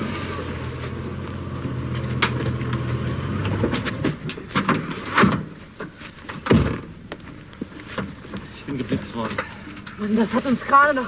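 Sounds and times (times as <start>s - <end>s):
vehicle engine humming: 0.0s - 6.3s.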